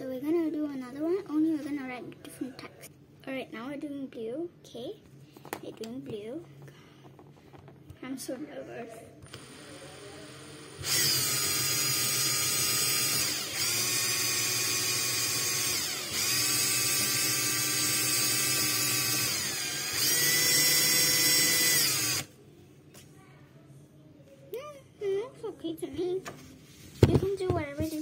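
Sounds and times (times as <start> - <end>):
cordless drill motor whining: 9.2 - 22.3.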